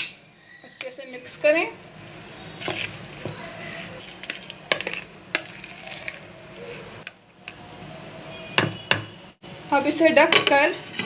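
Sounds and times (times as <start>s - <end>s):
spoon stirring wet marinade: 2.0s - 7.6s.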